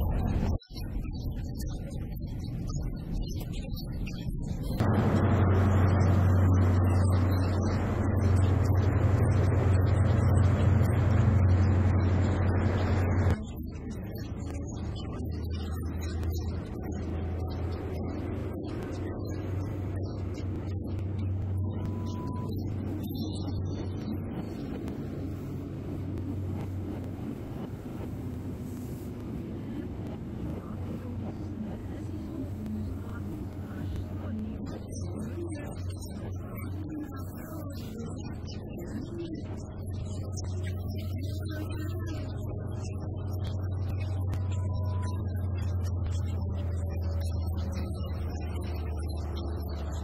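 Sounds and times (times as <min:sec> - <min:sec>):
train diesel engine running: 0:04.8 - 0:13.3, 0:19.4 - 0:35.6.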